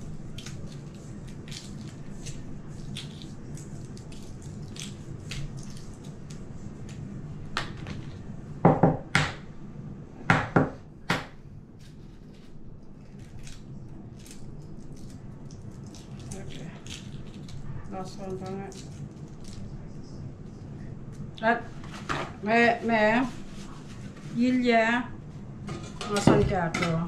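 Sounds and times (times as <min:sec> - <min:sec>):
eggshells crackling as peeled: 0:11.9 - 0:19.8.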